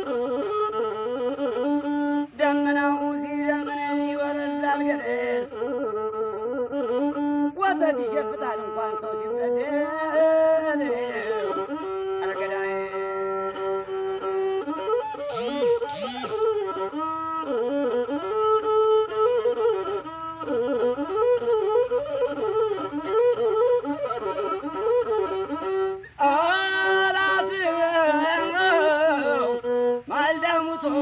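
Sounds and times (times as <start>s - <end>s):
bowed lute melody: 13.3s - 26.2s, 27.2s - 31.0s.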